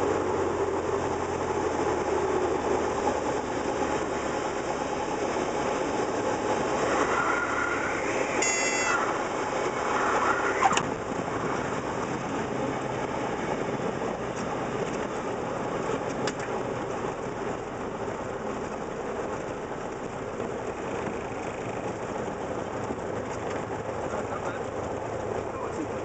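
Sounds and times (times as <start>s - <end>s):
aircraft engine and airflow drone: 0.0s - 26.0s
stall warning horn whistling: 6.8s - 10.8s.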